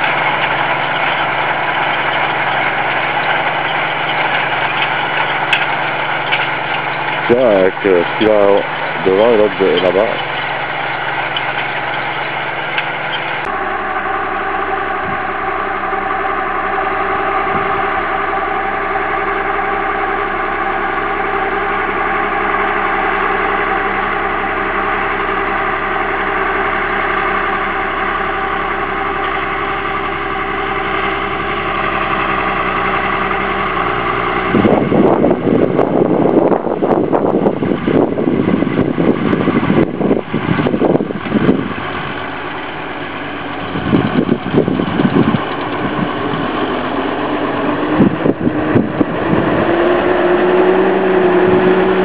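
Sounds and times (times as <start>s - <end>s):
tractor diesel engine running: 0.0s - 52.0s
wind buffeting microphone: 14.9s - 15.4s, 17.2s - 18.1s, 33.8s - 42.4s, 43.5s - 46.8s, 47.5s - 52.0s.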